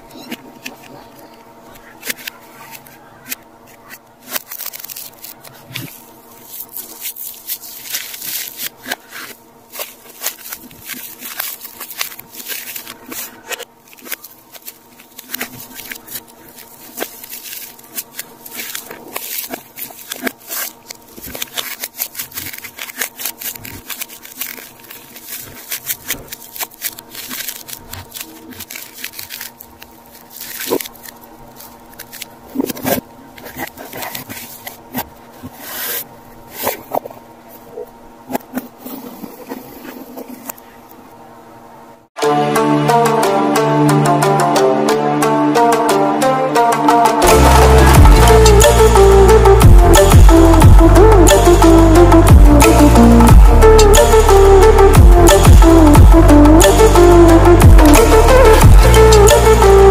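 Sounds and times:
scrapes and clicks: 0.0s - 41.1s
plastic packaging crinkling: 0.0s - 41.2s.

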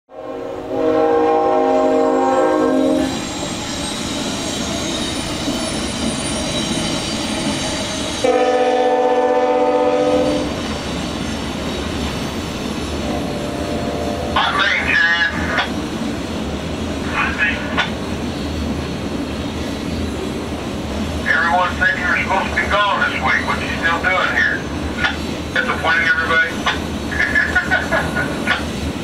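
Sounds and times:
train air horn blasts: 0.1s - 3.2s, 8.2s - 10.6s, 13.0s - 14.5s
freight train rumble and wheel noise: 0.1s - 29.0s.

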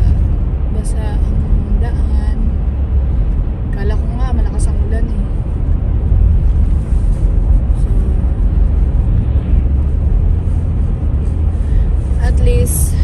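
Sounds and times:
deep road rumble: 0.0s - 13.0s.

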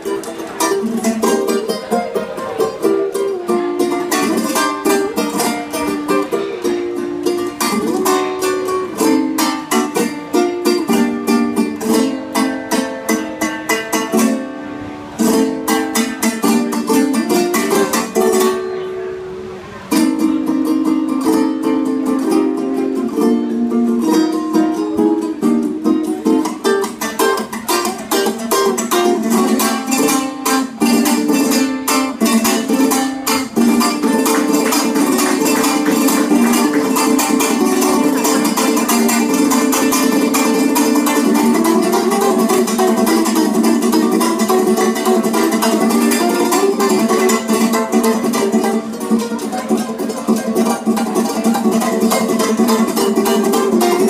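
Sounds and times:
ukulele played fast: 0.0s - 54.0s.

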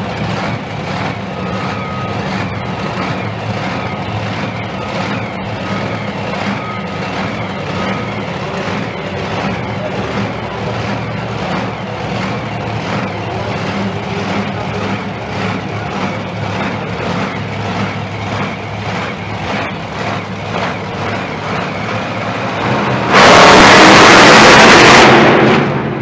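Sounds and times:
truck engine revving hard: 0.0s - 26.0s
truck engines throbbing drone: 0.0s - 26.0s.

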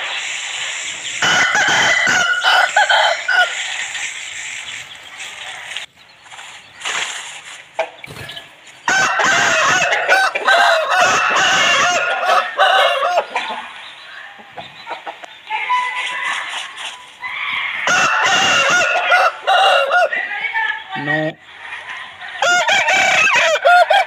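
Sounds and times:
rooster crowing: 1.2s - 3.6s, 8.9s - 13.6s, 17.3s - 20.2s, 22.4s - 24.0s.

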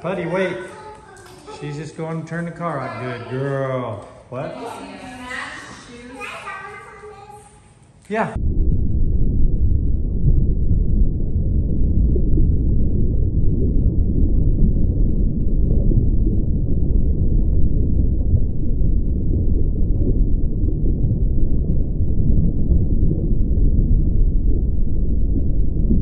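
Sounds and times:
muffled low rumble: 8.3s - 26.0s.

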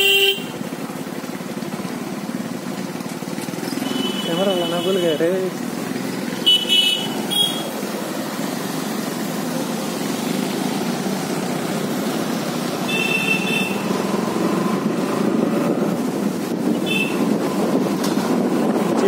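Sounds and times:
motorbike running on wet road: 0.0s - 19.0s
horn toots: 12.8s - 14.0s, 16.8s - 17.3s.

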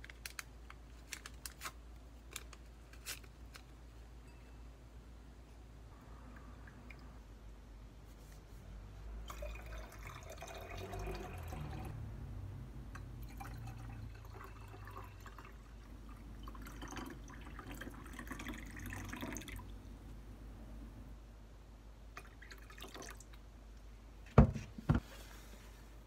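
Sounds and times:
water pouring into glass: 9.3s - 11.9s, 13.2s - 19.7s, 22.2s - 23.3s.

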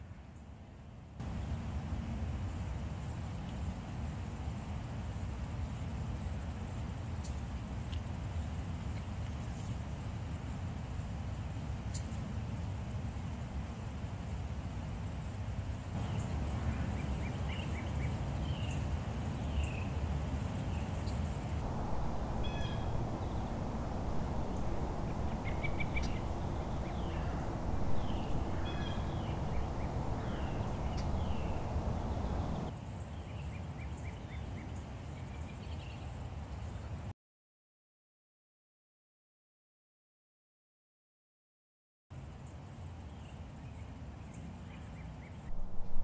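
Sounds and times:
songbirds chirping: 16.0s - 36.9s
steady low rumble: 21.6s - 32.7s, 45.5s - 46.0s.

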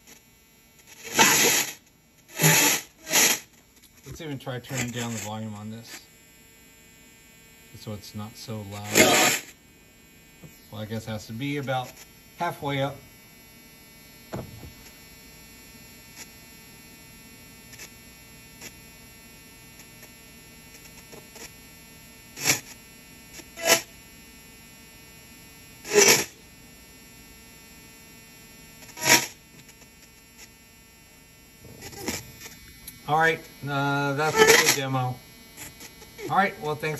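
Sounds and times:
steady electrical hum: 0.0s - 36.9s
radio sound bursts: 1.0s - 6.2s, 7.7s - 9.6s, 31.6s - 36.9s.

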